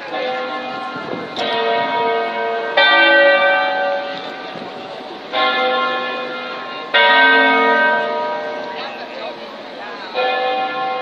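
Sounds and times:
church bells ringing: 0.0 - 11.0.

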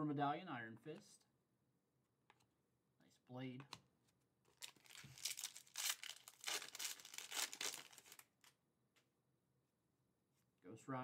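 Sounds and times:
foil wrapper crinkling and tearing: 4.5 - 8.5.

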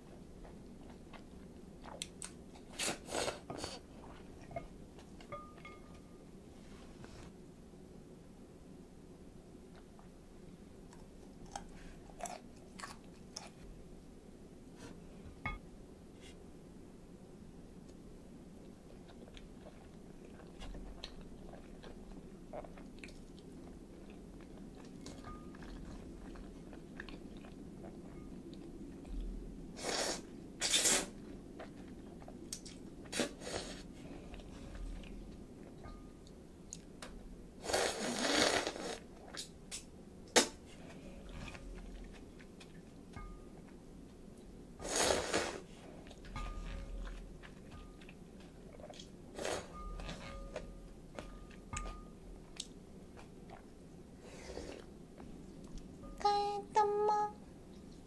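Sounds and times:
soft chewing: 0.0 - 7.4, 9.6 - 13.8, 17.8 - 30.4, 31.0 - 37.1, 40.6 - 56.2
loud slurps of noodles: 37.6 - 39.0, 44.8 - 45.6.

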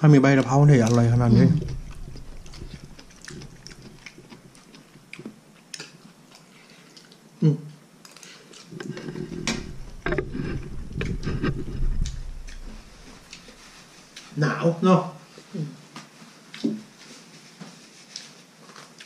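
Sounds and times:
chewing: 0.3 - 14.3, 18.1 - 19.0.

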